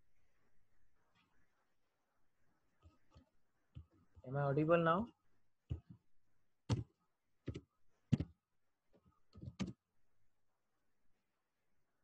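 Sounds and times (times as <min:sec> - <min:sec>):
computer mouse clicks: 0:09.3 - 0:09.8.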